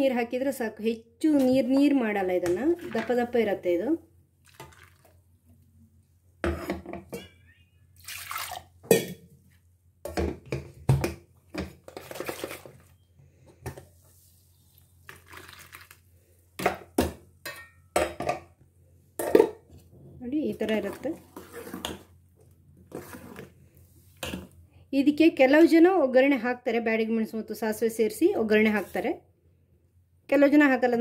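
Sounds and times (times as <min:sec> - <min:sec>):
liquid splashing: 0:04.4 - 0:05.2, 0:08.0 - 0:08.7
ladle scraping a steel bowl: 0:20.6 - 0:22.1, 0:22.9 - 0:24.6.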